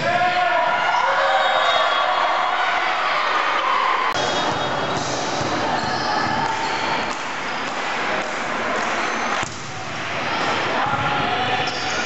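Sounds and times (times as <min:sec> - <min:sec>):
spectators chattering: 0:00.8 - 0:12.0
ball bouncing on gym floor: 0:04.2 - 0:07.8, 0:09.3 - 0:10.0.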